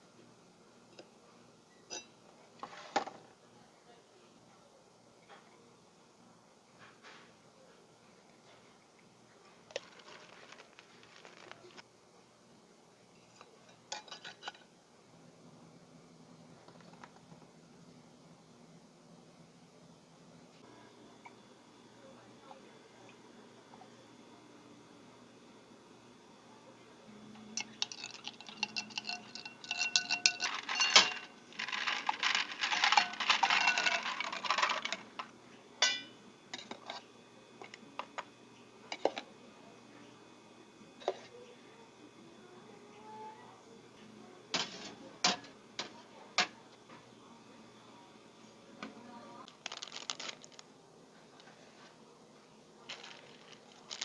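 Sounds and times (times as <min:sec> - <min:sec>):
ice tumbling into glass: 0:27.6 - 0:35.2, 0:49.5 - 0:50.6, 0:52.9 - 0:54.0
metal utensils clinking on skillet: 0:27.6 - 0:35.2, 0:35.8 - 0:37.0.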